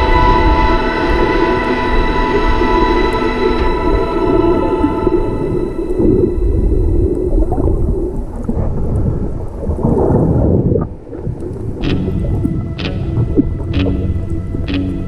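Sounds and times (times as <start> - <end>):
muffled underwater rumble: 0.0 - 15.0
music with tones and hits: 11.8 - 15.0.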